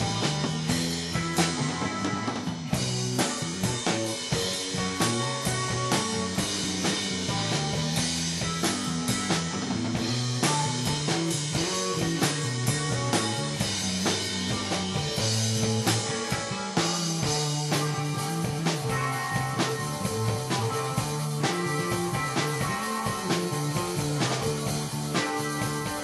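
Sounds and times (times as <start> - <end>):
drum kit beat: 0.0 - 26.0
electric guitars: 0.0 - 26.0.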